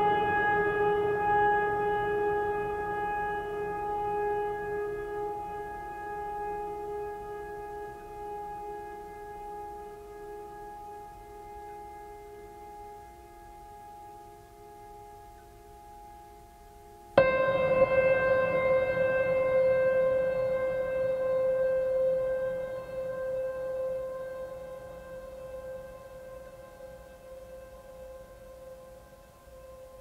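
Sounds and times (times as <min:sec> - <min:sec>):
held music chord: 0:00.0 - 0:30.0.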